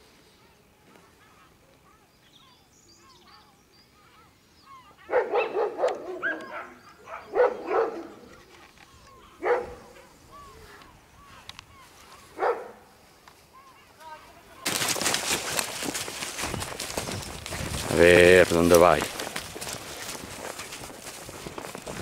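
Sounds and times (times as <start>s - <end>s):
faint birdsong: 0.0s - 14.6s
dog barking: 5.0s - 8.3s, 9.4s - 10.1s, 12.3s - 12.9s.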